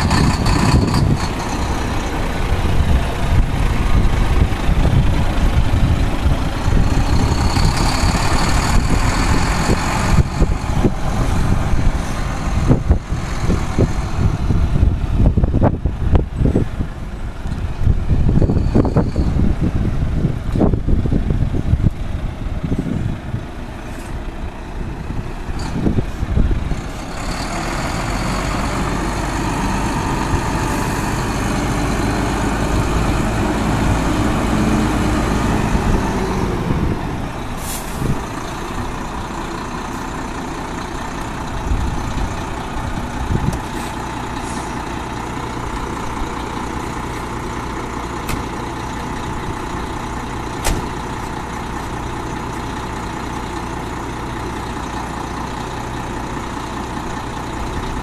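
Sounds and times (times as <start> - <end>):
wind buffeting microphone: 0.0 - 27.0, 27.6 - 47.0
diesel truck engine running: 0.0 - 58.0
air brake hiss: 37.6 - 38.2.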